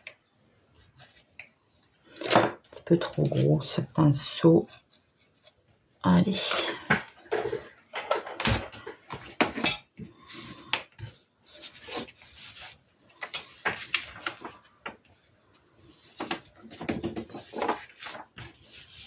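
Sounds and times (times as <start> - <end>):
paper rustling: 10.3 - 15.0, 17.2 - 19.0.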